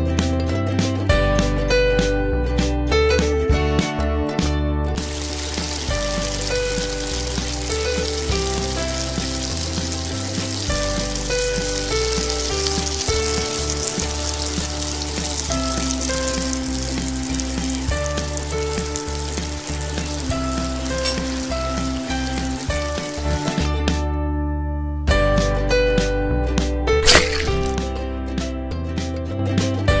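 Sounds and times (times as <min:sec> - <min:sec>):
background music: 0:00.0 - 0:30.0
garlic and onion sizzling in oil: 0:05.0 - 0:23.9, 0:27.0 - 0:27.9.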